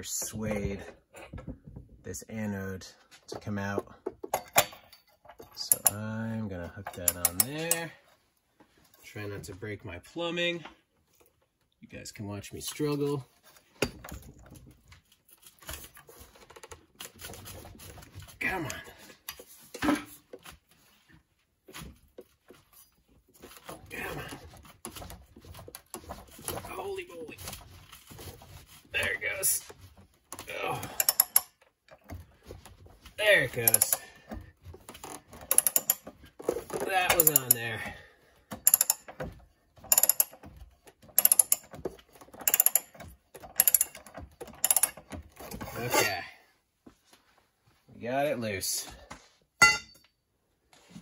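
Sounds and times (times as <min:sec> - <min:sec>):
socket wrench clicks and knocks: 0:31.0 - 0:31.5, 0:35.5 - 0:36.0, 0:37.2 - 0:37.6, 0:38.6 - 0:39.1, 0:39.9 - 0:40.4, 0:41.1 - 0:41.7, 0:42.4 - 0:45.0.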